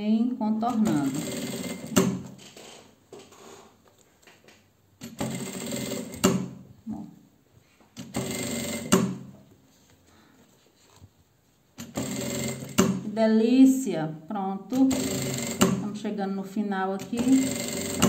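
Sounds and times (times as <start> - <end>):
sewing machine stitching: 0.7 - 2.8, 5.0 - 6.6, 8.0 - 9.2, 11.8 - 13.1, 14.7 - 15.8, 17.0 - 18.0.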